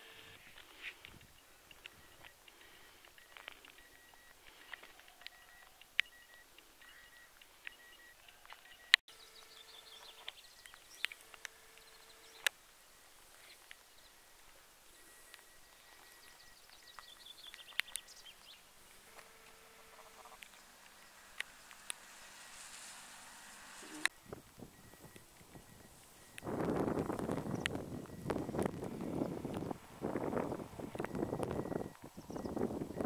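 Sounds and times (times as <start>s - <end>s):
sharp clicks: 0.5s - 12.6s, 13.5s - 22.9s, 23.8s - 29.8s, 30.8s - 32.6s
short bird calls: 3.9s - 24.1s.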